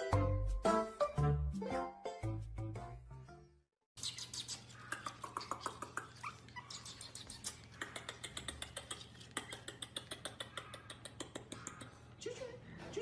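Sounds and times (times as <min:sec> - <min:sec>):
puppy whining: 0:04.4 - 0:09.4.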